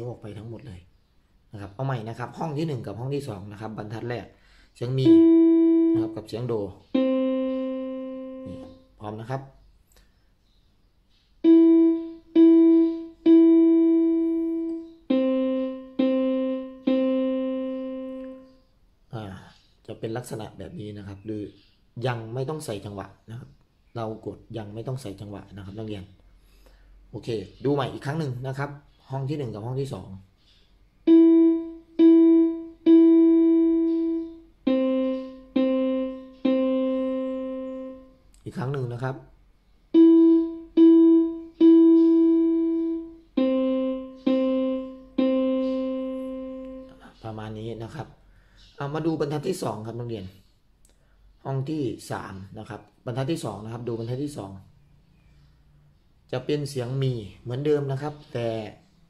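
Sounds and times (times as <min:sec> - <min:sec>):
electronic keyboard single notes: 0:04.8 - 0:09.2, 0:11.4 - 0:18.6, 0:31.0 - 0:39.1, 0:39.9 - 0:47.4.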